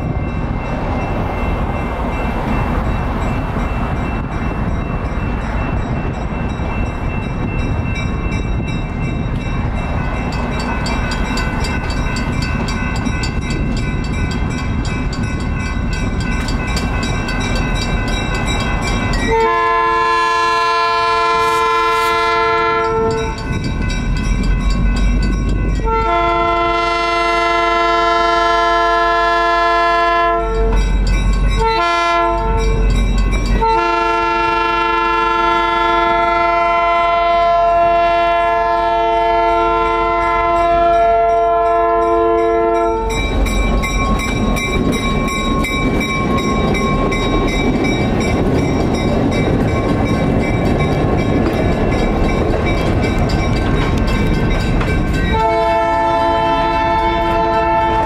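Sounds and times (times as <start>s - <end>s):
diesel locomotive rumbling: 0.0s - 58.0s
train air horn blasts: 19.3s - 23.4s, 25.8s - 30.8s, 31.6s - 32.8s, 33.6s - 43.2s, 55.3s - 58.0s.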